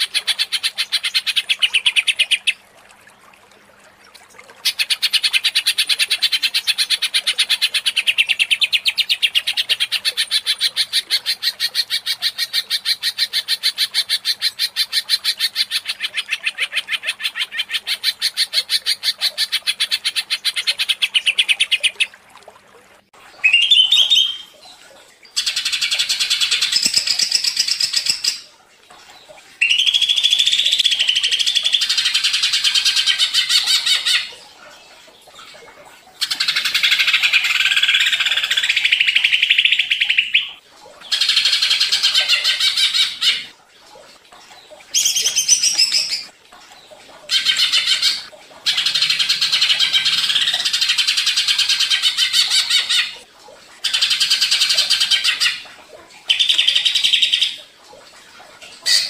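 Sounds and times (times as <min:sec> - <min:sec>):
bird chattering song: 0:23.4 - 0:24.5, 0:29.6 - 0:34.3.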